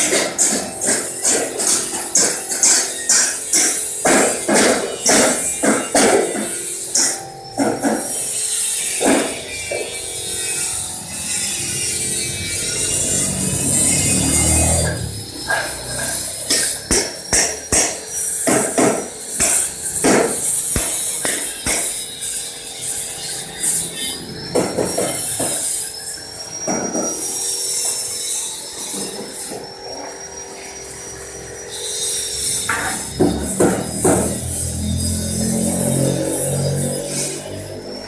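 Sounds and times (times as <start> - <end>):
sharp metal knocks: 0.0 - 10.7, 14.8 - 22.4, 24.5 - 25.9, 32.7 - 34.8
angle grinder whining on steel: 0.0 - 38.0.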